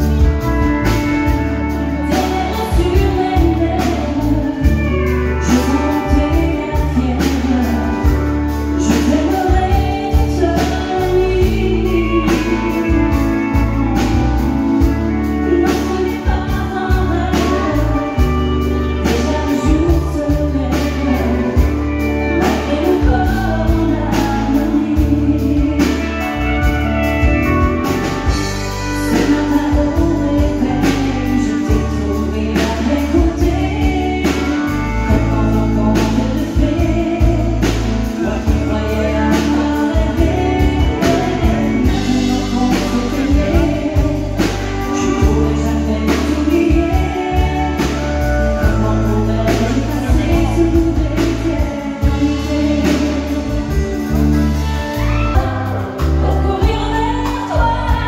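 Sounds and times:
electric bass guitar: 0:00.0 - 0:58.0
woman singing into microphone: 0:00.0 - 0:58.0.

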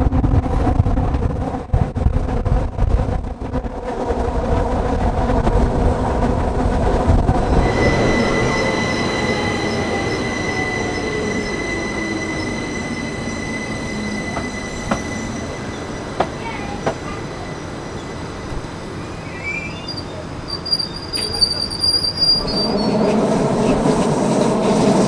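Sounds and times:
wind buffeting microphone: 0:00.0 - 0:18.8
train running hum: 0:00.0 - 0:25.0
high steady train squeal: 0:04.9 - 0:25.0.

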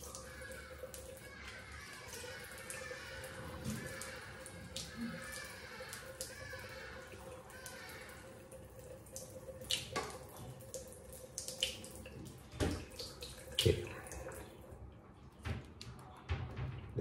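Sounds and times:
tap water running into sink: 0:00.0 - 0:14.8
knocks and clunks at basin: 0:15.4 - 0:17.0.

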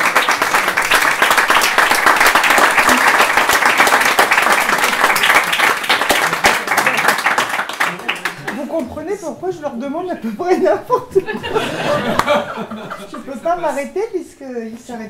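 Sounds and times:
audience applauding: 0:00.0 - 0:09.0.

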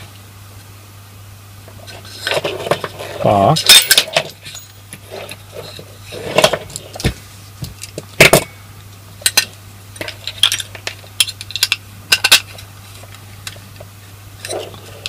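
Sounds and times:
metal clinks and knocks: 0:02.1 - 0:06.8.

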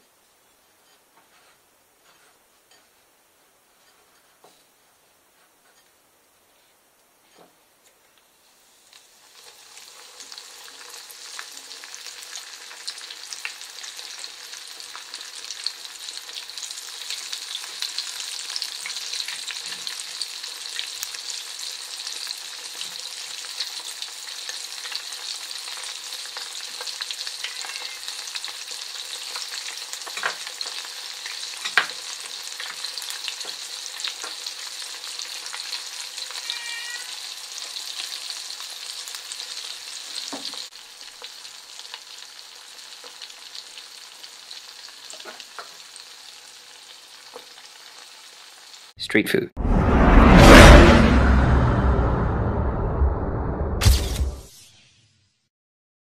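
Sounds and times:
onion rings deep-frying in oil: 0:08.4 - 0:48.9.

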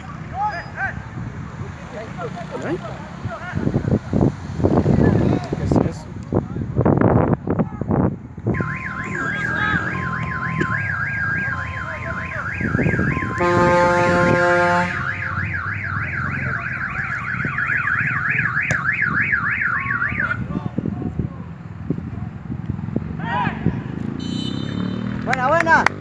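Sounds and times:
car alarm siren: 0:08.5 - 0:20.5
low horn blare: 0:08.6 - 0:18.5, 0:24.1 - 0:25.2.

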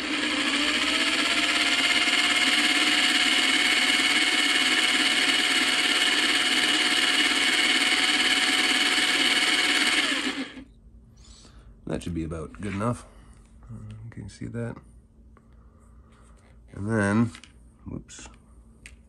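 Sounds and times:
screwdriver carving wax: 0:00.0 - 0:10.6
electric drill whining: 0:00.0 - 0:10.7.

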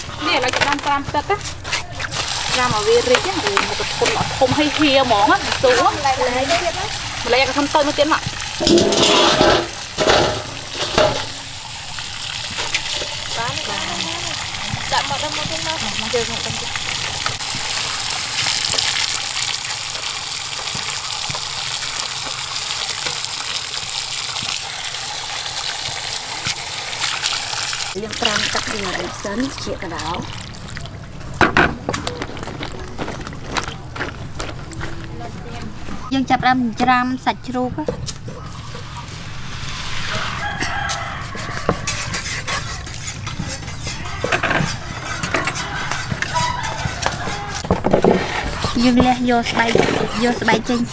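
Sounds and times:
water gushing into metal basin: 0:01.9 - 0:34.0, 0:38.5 - 0:50.9
rooster crowing: 0:40.0 - 0:42.5, 0:44.8 - 0:47.6.

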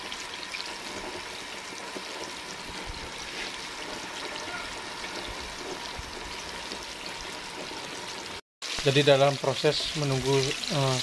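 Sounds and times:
chicken deep-frying in oil: 0:00.0 - 0:11.0.

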